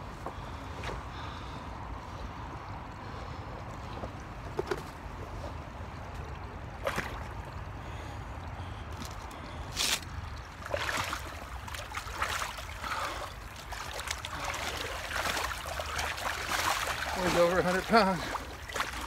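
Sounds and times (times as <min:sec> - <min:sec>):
creek water running: 0:01.8 - 0:19.0
waders sloshing through water: 0:03.1 - 0:19.0.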